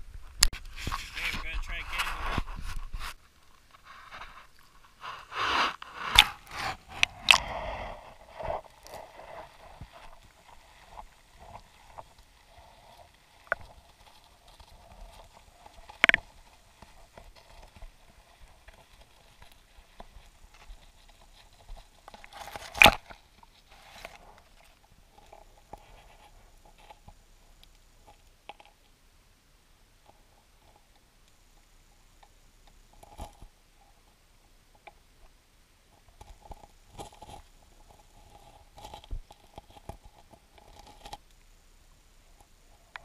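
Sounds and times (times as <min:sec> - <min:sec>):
camera housing scraping ice: 0:00.7 - 0:10.2, 0:22.1 - 0:23.2.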